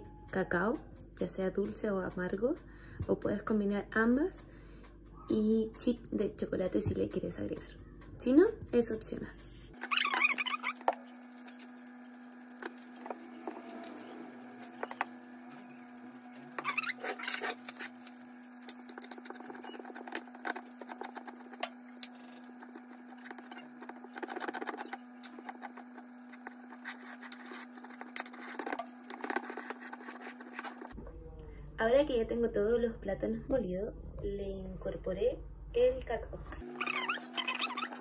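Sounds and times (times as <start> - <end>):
steady low hum: 0.0 - 38.0
utensil scraping on plate: 16.5 - 31.0.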